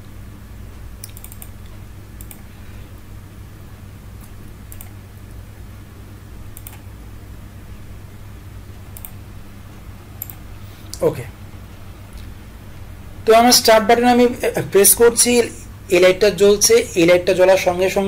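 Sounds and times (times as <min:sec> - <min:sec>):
low electrical hum: 0:00.0 - 0:18.0
mouse and keyboard clicks: 0:01.0 - 0:01.6, 0:06.6 - 0:06.8, 0:10.2 - 0:10.4.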